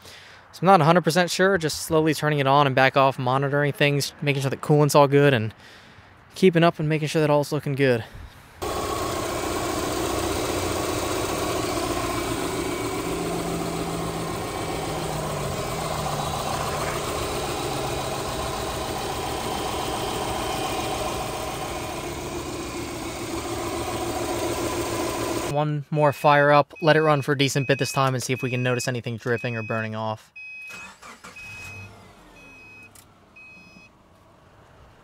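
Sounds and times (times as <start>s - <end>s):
car engine idling: 8.6s - 25.5s.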